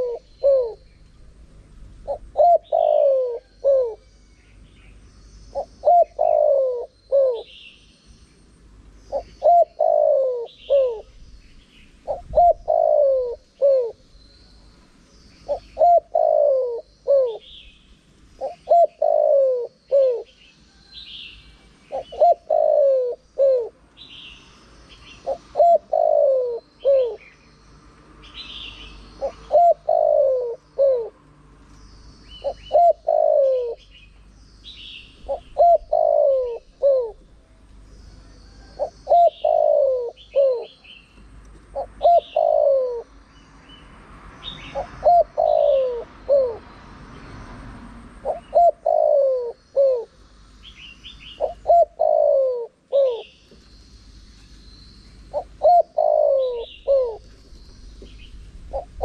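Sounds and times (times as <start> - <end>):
dove cooing: 0.0 - 1.0, 2.0 - 4.1, 5.5 - 7.6, 9.1 - 11.2, 12.0 - 14.1, 15.4 - 17.7, 18.4 - 20.5, 21.7 - 24.1, 25.0 - 27.4, 28.6 - 31.2, 32.4 - 34.0, 35.2 - 37.4, 38.1 - 40.9, 41.6 - 43.2, 44.6 - 46.7, 48.1 - 53.4, 55.3 - 59.0
small birds chirping: 0.0 - 59.0.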